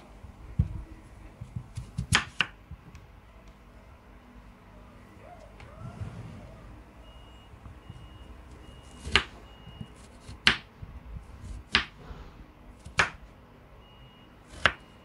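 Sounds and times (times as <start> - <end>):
knife cutting potato: 1.4 - 2.6, 14.5 - 14.9.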